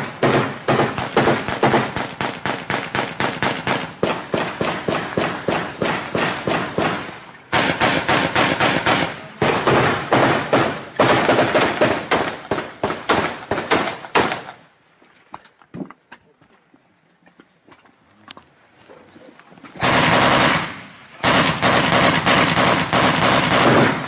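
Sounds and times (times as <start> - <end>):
automatic rifle fire: 0.0 - 14.6, 19.8 - 24.0.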